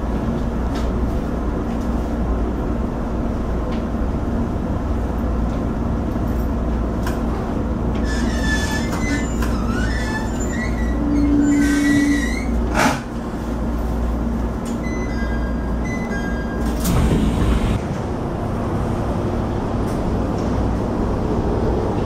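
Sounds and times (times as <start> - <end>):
train interior rumble: 0.0 - 22.0
wheel squeal: 8.0 - 12.8.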